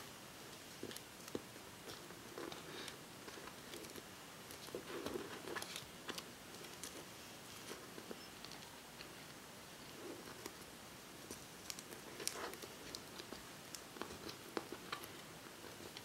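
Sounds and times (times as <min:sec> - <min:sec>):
tape crackles: 0:00.5 - 0:16.0
duct tape crinkling: 0:02.4 - 0:07.0, 0:11.3 - 0:16.0.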